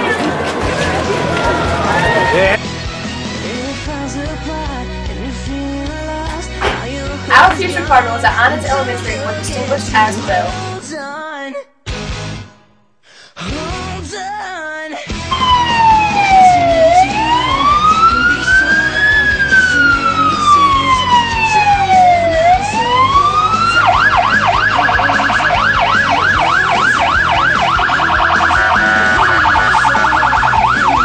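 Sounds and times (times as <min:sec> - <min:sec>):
electronic siren: 0:15.3 - 0:31.0.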